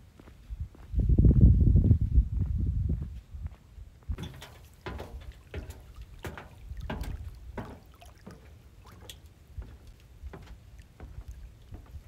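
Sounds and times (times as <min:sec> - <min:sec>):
footsteps on floating dock: 0:00.0 - 0:01.5, 0:02.4 - 0:12.0
water and wind rumble: 0:03.9 - 0:12.0.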